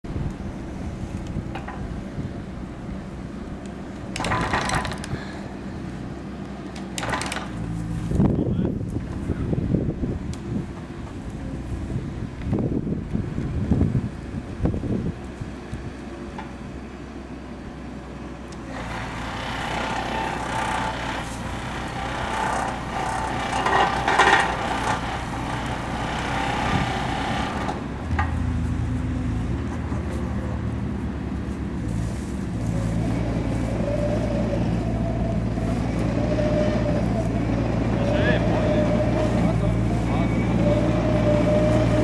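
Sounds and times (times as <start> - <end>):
excavator engine running: 0.1 - 42.0
hydraulic whine: 18.6 - 28.5.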